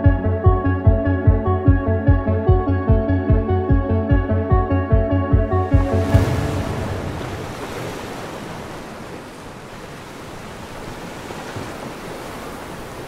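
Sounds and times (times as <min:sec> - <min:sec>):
ocean surf breaking: 0:05.6 - 0:13.0.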